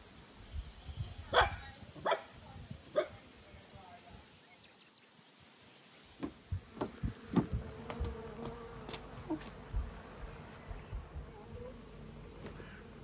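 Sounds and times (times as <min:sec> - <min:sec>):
sharp knocks and thumps: 0:06.2 - 0:09.0
honeybees buzzing: 0:06.2 - 0:13.0.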